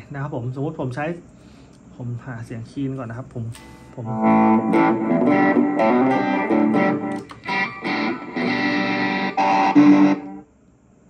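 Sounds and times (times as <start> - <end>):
electric guitar picking notes: 3.6 - 10.5.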